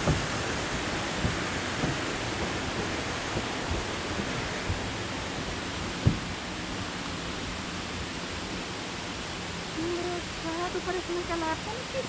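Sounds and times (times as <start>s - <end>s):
soft low thumps: 0.0s - 6.8s
rushing water: 0.0s - 12.0s.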